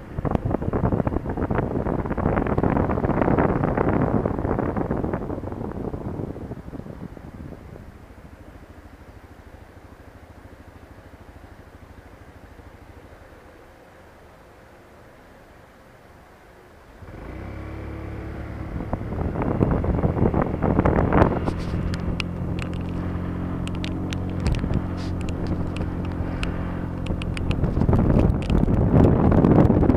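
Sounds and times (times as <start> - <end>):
rush of noise: 13.0 - 29.9
light clicking: 23.6 - 28.8.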